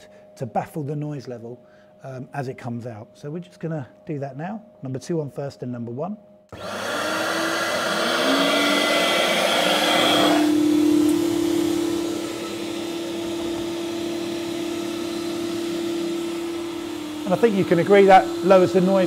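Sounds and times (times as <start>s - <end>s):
vacuum motors whining: 6.5s - 19.0s
rushing exhaust: 6.6s - 19.0s.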